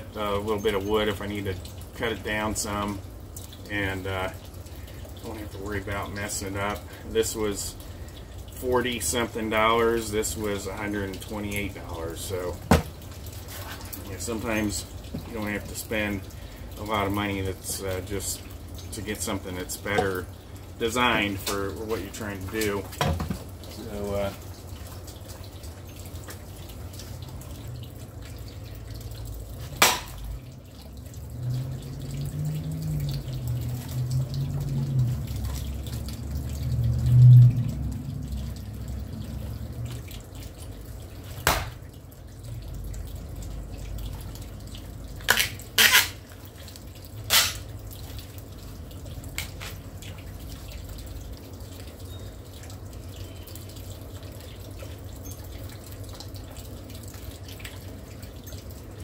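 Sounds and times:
axe chopping firewood: 29.8 - 30.2, 41.4 - 41.8.

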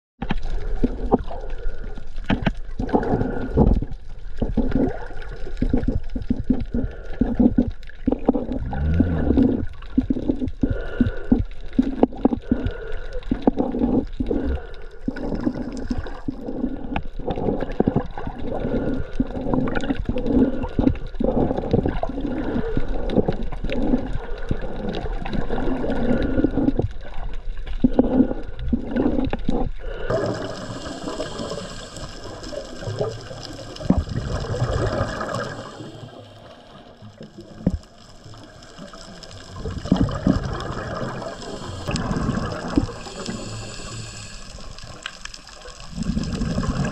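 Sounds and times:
underwater bubbling: 0.2 - 46.9
hissing underwater noise: 0.4 - 46.9.

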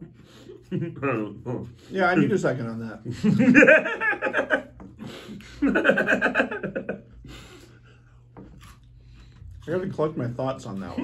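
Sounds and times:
man laughing: 0.6 - 1.5, 3.0 - 7.2.

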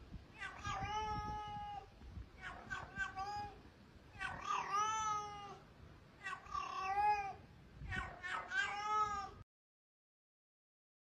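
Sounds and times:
kitten meowing: 0.4 - 1.8, 2.4 - 3.6, 4.2 - 5.6, 6.2 - 9.4.

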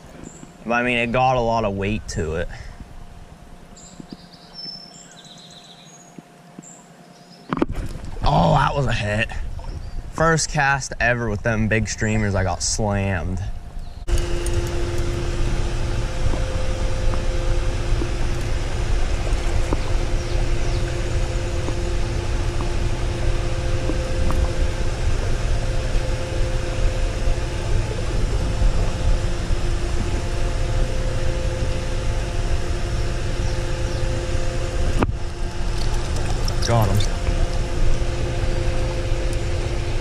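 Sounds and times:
two-tone machine hum: 0.0 - 40.0.

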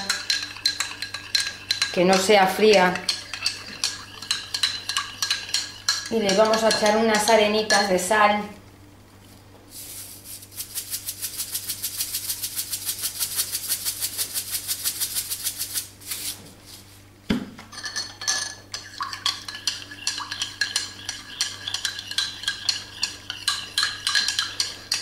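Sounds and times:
metal spoon clinking ceramic mug: 0.0 - 2.3, 3.0 - 7.0, 17.7 - 25.0.

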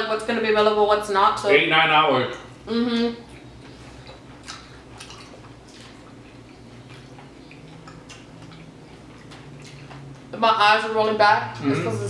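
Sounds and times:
chewing and mouth clicks: 3.2 - 10.3.

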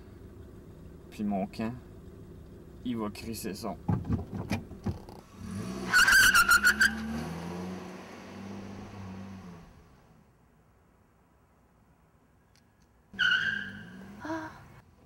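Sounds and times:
car engine revving: 3.8 - 10.1
tyres squealing: 5.8 - 7.2.

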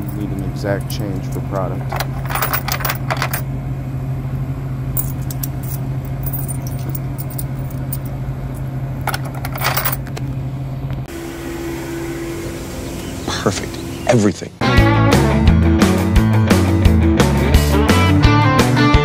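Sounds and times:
steady low hum: 0.0 - 14.6
coins clinking into machine: 1.8 - 3.4, 5.0 - 8.1, 9.1 - 10.1.

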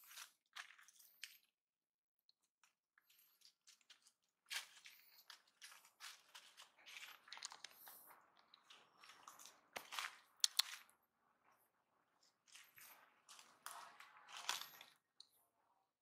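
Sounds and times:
dry leaves and litter crunching: 3.8 - 10.8.

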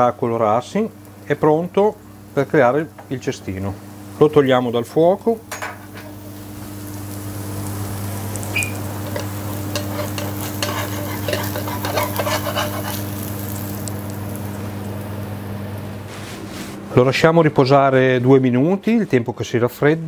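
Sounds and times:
cheese sizzling in a pan: 0.0 - 16.1
metal spatula scraping a pan: 9.0 - 13.3.

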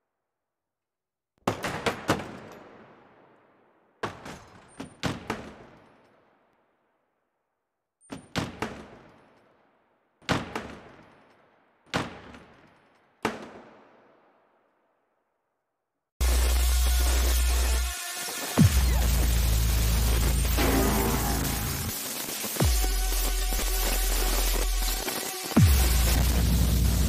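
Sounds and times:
sharp gunshot-like electronic cracks: 20.5 - 23.2.

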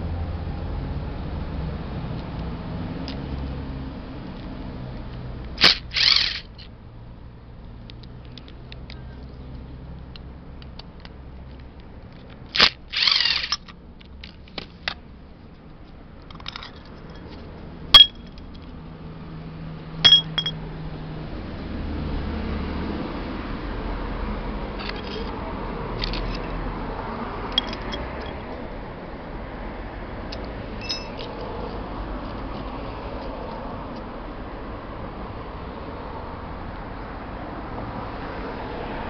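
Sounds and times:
impact driver bursts: 5.6 - 6.5, 12.6 - 13.6
small metal clicks and clinks: 10.7 - 14.4, 16.2 - 17.4, 18.0 - 18.7, 20.0 - 20.6, 27.5 - 28.5, 30.3 - 31.4.

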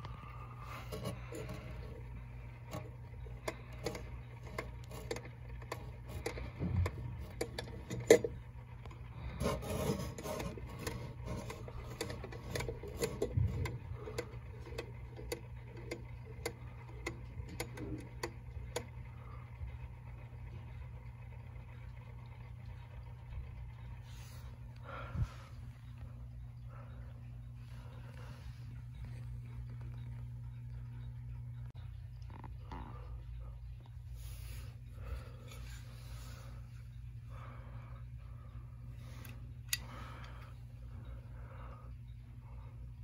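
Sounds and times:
wall clock ticking: 1.0 - 19.0.

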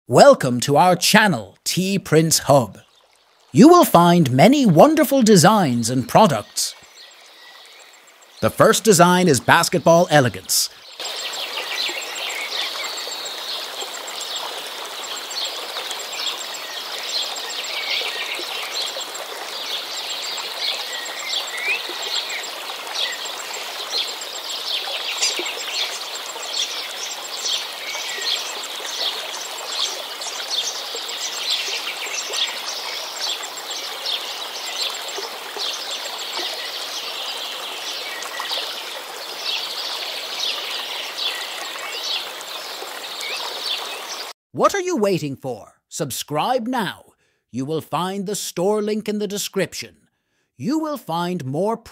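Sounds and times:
running water: 0.1 - 44.4
bird chirps and calls: 19.6 - 38.7.

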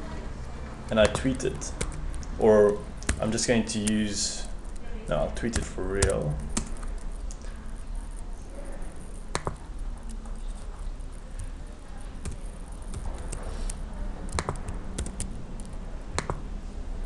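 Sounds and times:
steady low hum: 0.0 - 17.0
keyboard and mouse clicks: 1.0 - 4.0, 5.4 - 7.5, 9.0 - 11.5, 12.2 - 16.4.

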